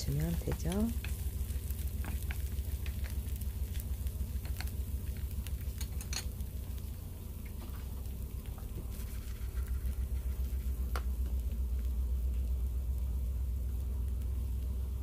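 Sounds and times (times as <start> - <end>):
oil spattering in a pan: 0.0 - 11.3
steady low hum: 0.0 - 15.0.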